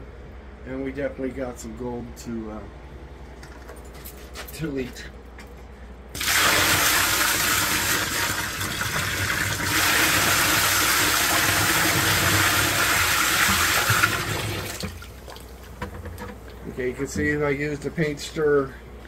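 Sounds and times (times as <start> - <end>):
water pouring into barrel: 6.2 - 15.8.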